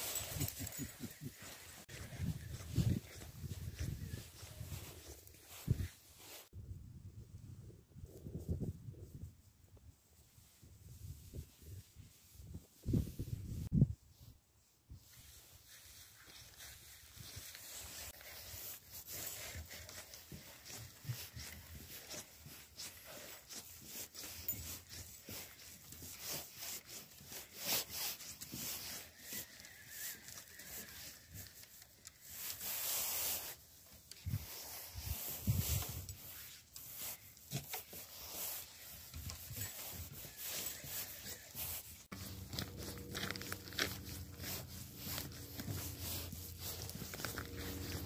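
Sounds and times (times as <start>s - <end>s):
rubbing and tearing noises: 15.3s - 48.0s
footsteps on wooden footbridge: 17.8s - 28.7s, 37.5s - 48.0s.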